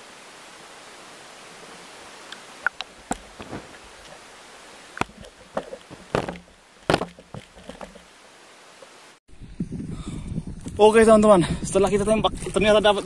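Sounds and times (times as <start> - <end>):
steady hiss: 0.0 - 6.9
water splashing and sloshing: 2.6 - 9.2.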